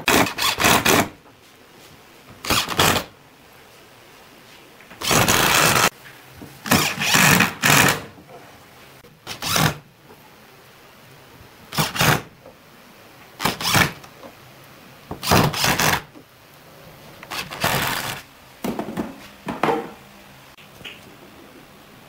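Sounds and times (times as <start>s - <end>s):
cordless drill driving screws: 0.1s - 1.1s, 5.0s - 5.9s, 6.7s - 8.1s, 13.4s - 14.0s, 15.2s - 16.0s, 17.3s - 18.2s.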